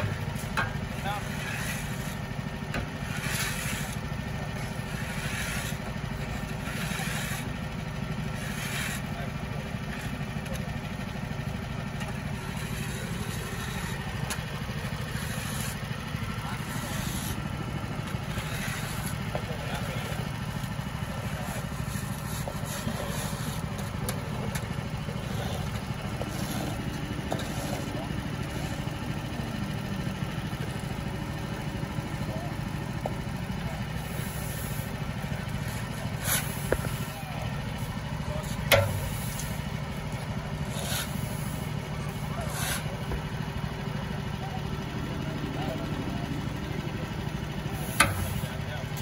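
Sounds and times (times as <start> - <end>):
shovels scraping asphalt: 0.0 - 10.6, 12.0 - 29.6, 34.0 - 43.2, 47.7 - 49.0
engine running: 0.0 - 49.0.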